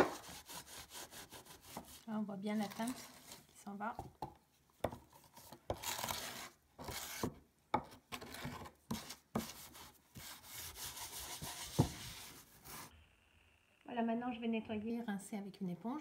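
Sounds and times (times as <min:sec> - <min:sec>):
steel wool scrubbing wood: 0:09.4 - 0:12.9.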